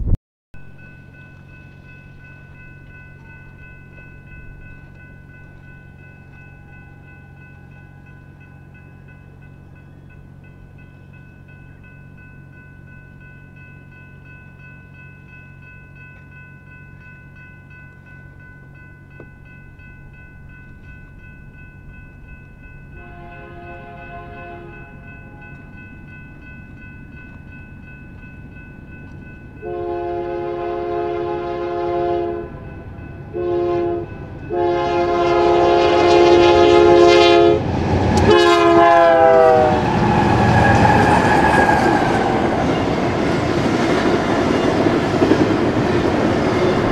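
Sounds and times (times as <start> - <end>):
locomotive air horn blasts: 23.0 - 25.4, 29.6 - 32.5, 33.3 - 37.6, 38.2 - 39.9.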